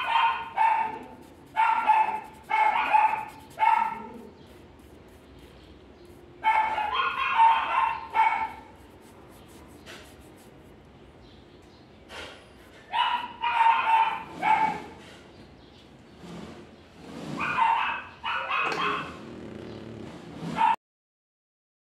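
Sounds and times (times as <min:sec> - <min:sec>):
dog yipping and barking: 0:00.0 - 0:04.6, 0:06.4 - 0:08.8, 0:12.8 - 0:15.0, 0:17.4 - 0:19.2, 0:20.5 - 0:20.8.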